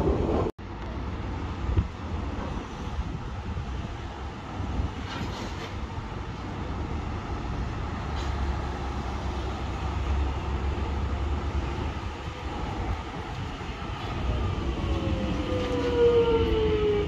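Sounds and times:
electric train rumble: 0.0 - 17.0.

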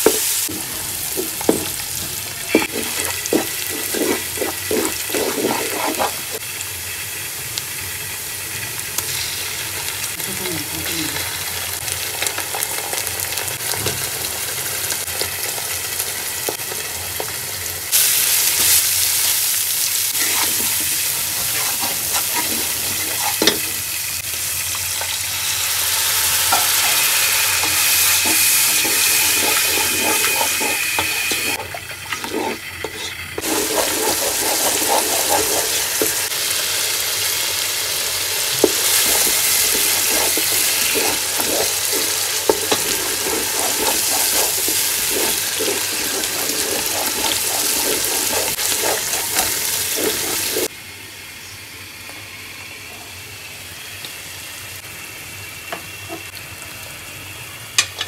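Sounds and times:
spatula scraping a pan: 0.0 - 6.4, 20.1 - 23.9, 26.4 - 36.3, 38.6 - 50.7
onions sizzling in hot oil: 0.0 - 50.7, 53.8 - 58.0.

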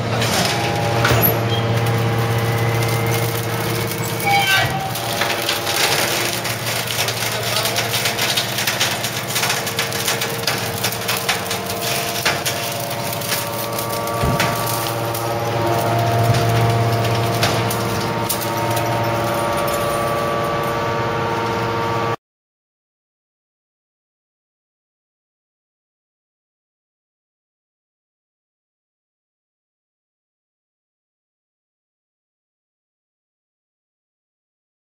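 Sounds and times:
hydraulic baler humming: 0.0 - 22.2
spring wire crackling and snapping: 1.8 - 20.7.

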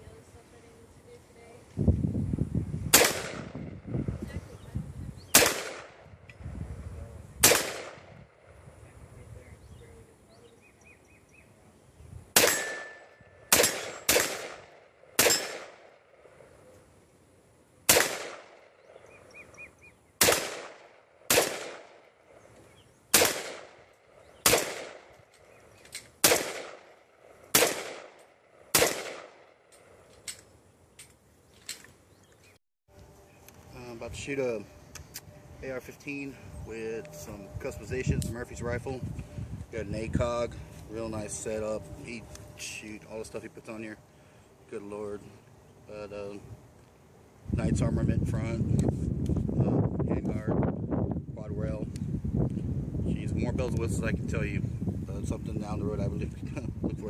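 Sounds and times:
rifle shots: 2.9 - 3.7, 5.3 - 6.1, 7.4 - 8.4, 12.3 - 16.3, 17.9 - 18.8, 20.2 - 22.2, 23.1 - 25.2, 26.2 - 29.8.

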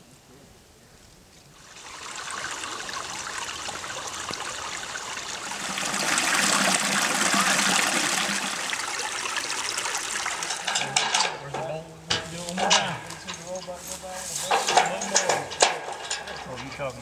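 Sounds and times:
water splashing over rocks: 1.6 - 13.6.

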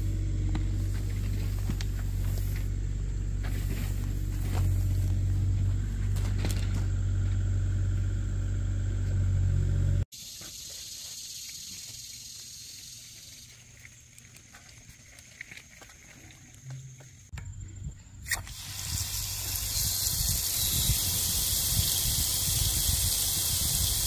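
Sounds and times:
steady low rumble: 0.0 - 10.1
steady hiss: 18.3 - 24.0.

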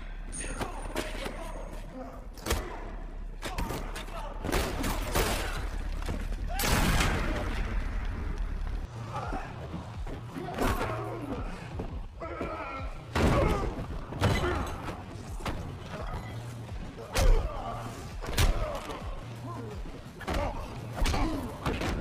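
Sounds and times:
dramatic music score: 0.0 - 22.0.

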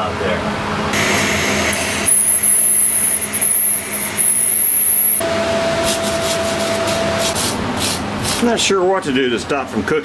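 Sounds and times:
welding arc hissing: 1.7 - 5.2.

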